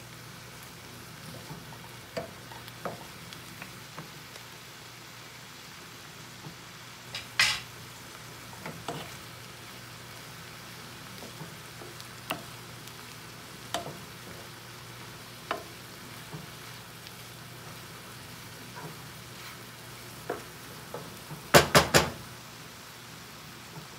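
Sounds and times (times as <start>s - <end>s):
food sizzling in a frying pan: 0.0s - 23.9s
wooden spoon scraping a pan: 8.5s - 9.3s, 15.3s - 21.5s.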